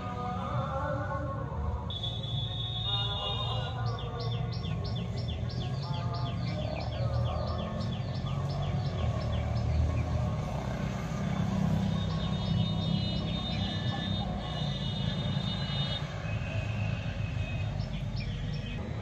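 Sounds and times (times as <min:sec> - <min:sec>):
bird chirping: 0:02.9 - 0:10.5, 0:16.7 - 0:19.0.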